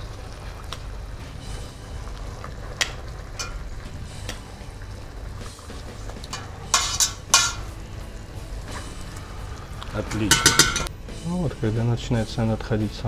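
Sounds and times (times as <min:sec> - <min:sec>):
metal spoon clinking on pot: 0:06.3 - 0:07.7, 0:10.1 - 0:10.9.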